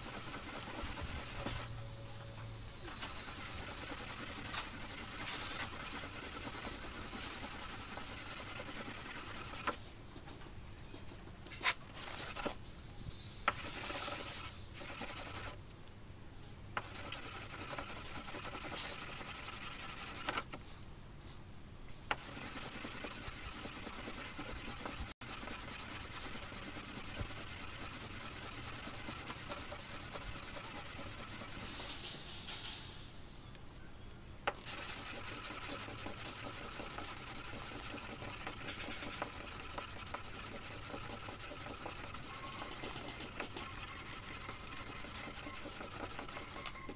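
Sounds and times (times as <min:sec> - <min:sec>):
hand wet-sanding: 0:00.0 - 0:01.7, 0:02.9 - 0:09.8, 0:12.0 - 0:12.5, 0:13.5 - 0:15.6, 0:16.8 - 0:20.4, 0:22.1 - 0:32.3, 0:34.6 - 0:46.7.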